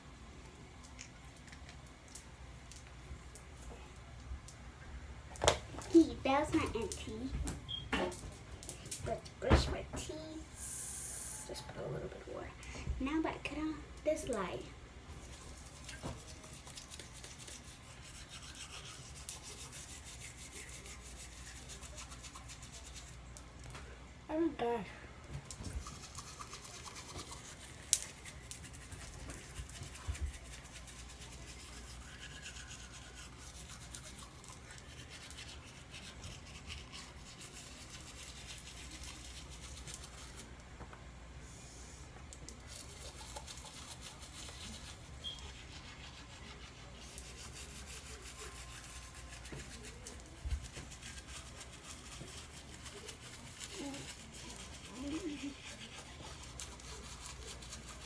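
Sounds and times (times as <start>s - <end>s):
toothbrush bristles scrubbing: 15.2s - 23.3s, 25.6s - 40.5s, 42.4s - 58.0s.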